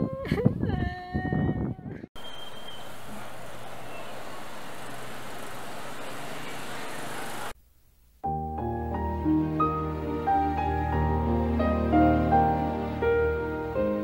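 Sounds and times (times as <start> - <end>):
distant road traffic hiss: 2.2 - 7.6
soft music: 8.2 - 14.0.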